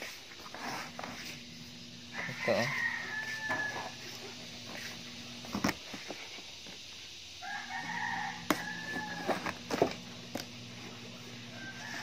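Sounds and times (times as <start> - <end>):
rooster crowing: 2.0 - 4.5, 7.4 - 9.9, 11.2 - 12.0.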